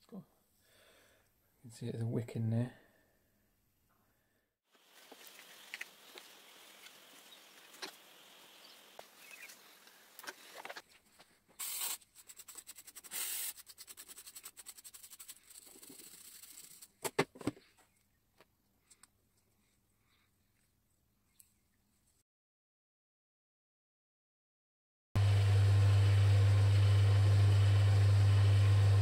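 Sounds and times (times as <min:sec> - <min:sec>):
aerosol spray can hissing: 0:11.6 - 0:16.9.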